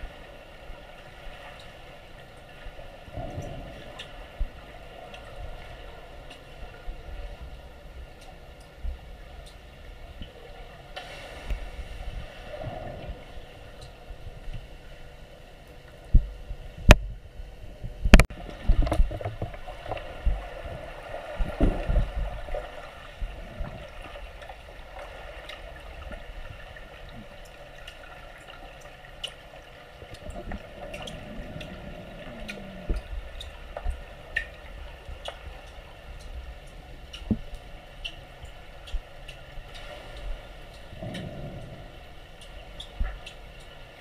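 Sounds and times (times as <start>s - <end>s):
underwater gurgling and bubbles: 0.0s - 44.0s
small ticks: 30.1s - 43.8s.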